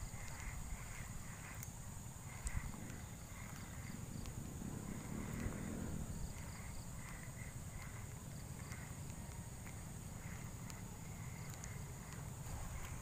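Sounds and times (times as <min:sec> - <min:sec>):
high-pitched insect drone: 0:00.0 - 0:13.0
low rumble: 0:02.1 - 0:08.5.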